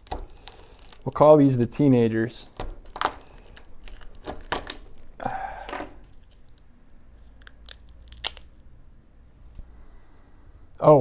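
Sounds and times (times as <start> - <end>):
blade cutting with crackling snaps: 0.0 - 1.2
rough tearing crunch: 0.0 - 8.7.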